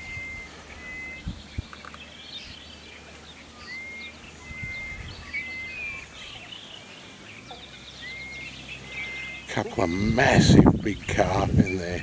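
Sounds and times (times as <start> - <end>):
bird whistling long flat note: 0.0 - 1.7, 3.4 - 6.4, 8.0 - 9.5
high bird chirps: 0.0 - 12.0.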